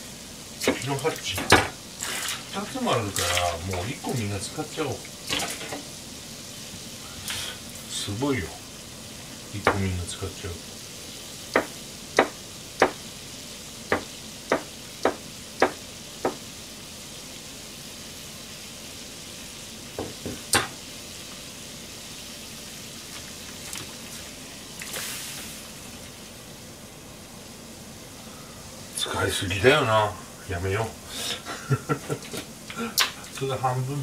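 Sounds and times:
sizzling hiss from stove: 0.0 - 34.0
knife chopping on cutting board: 11.5 - 13.0, 13.9 - 16.4
splash into simmering water: 23.0 - 25.8.

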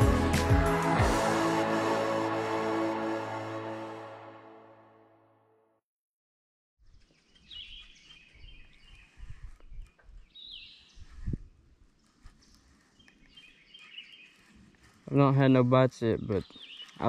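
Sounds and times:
birds chirping: 7.0 - 11.1, 12.3 - 17.0.

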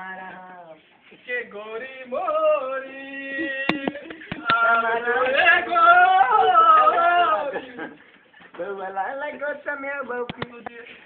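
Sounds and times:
sharp clicks: 10.3 - 10.8.

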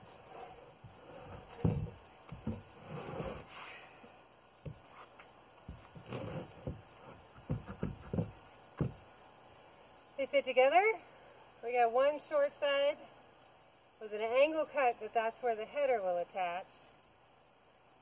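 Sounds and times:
wooden boards knocking and thudding: 0.8 - 2.7, 5.7 - 9.1.

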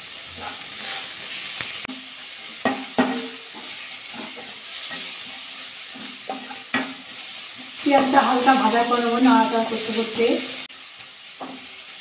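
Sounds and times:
onions sizzling in oil: 0.0 - 12.0
wooden spatula knocking and scraping pan: 1.9 - 7.8, 11.4 - 11.7.

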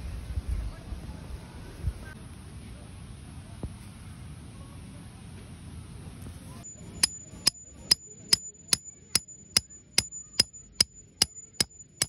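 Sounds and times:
sharp knocks: 7.0 - 12.0.

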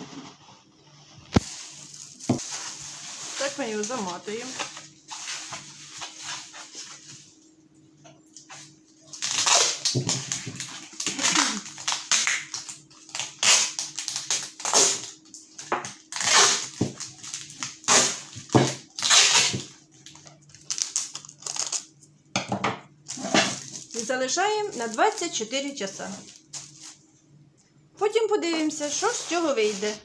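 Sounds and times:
packing tape pulled off roll: 1.3 - 6.6, 9.1 - 21.9, 28.9 - 30.0
plastic bag crinkling: 1.3 - 7.1, 9.1 - 22.0, 23.0 - 27.0, 28.4 - 30.0.

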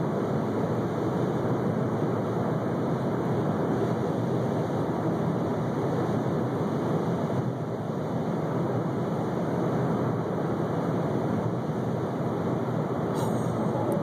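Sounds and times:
car road noise inside cabin: 0.0 - 14.0.

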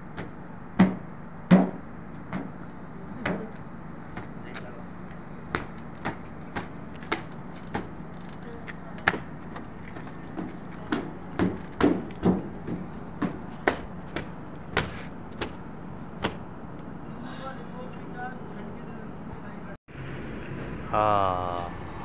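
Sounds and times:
steady low hum: 0.0 - 22.0
cloth slapping car body: 9.0 - 15.6.

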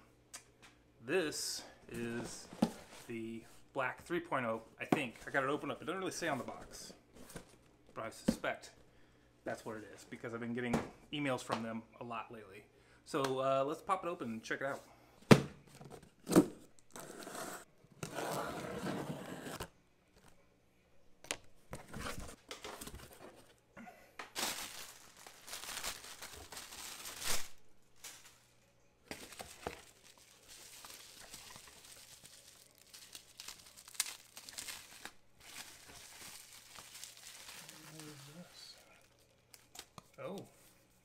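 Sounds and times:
bubble wrap crinkling: 24.3 - 28.5, 29.1 - 40.1
plastic bag crinkling: 24.3 - 28.5, 29.1 - 39.8
packing tape tearing: 24.4 - 27.6, 29.1 - 38.4.

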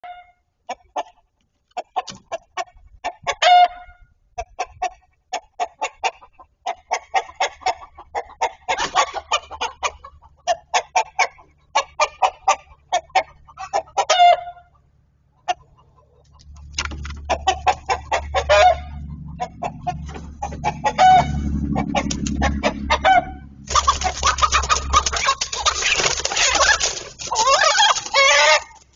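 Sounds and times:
chickens clucking: 0.0 - 28.9
low steady rumble: 14.5 - 28.9.

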